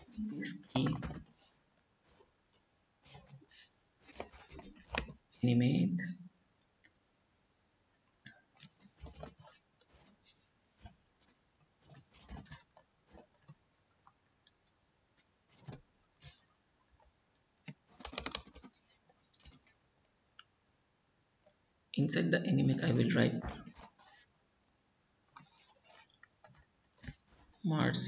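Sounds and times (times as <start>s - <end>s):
typing on computer keyboard: 17.9s - 19.6s.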